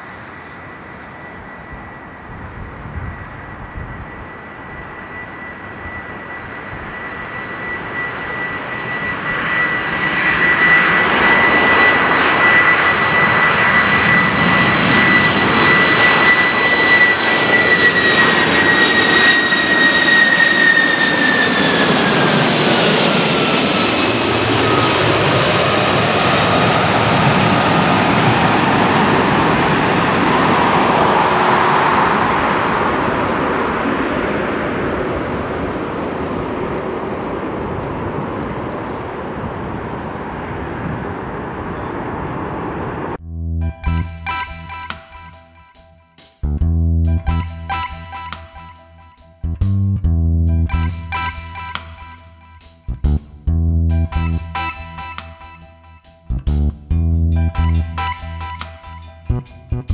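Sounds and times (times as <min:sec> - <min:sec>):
high fan whine: 0:00.0 - 0:09.8, 0:11.3 - 0:18.7
jet engines roaring: 0:00.0 - 0:43.2, 0:50.8 - 0:52.9, 0:54.1 - 0:56.2.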